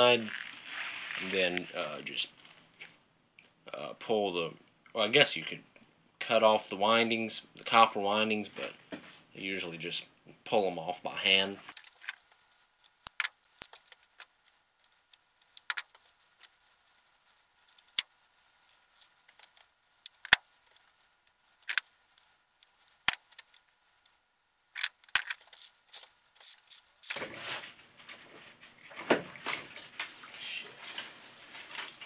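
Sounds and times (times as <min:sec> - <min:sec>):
scrap metal parts clinking: 0:24.8 - 0:27.2.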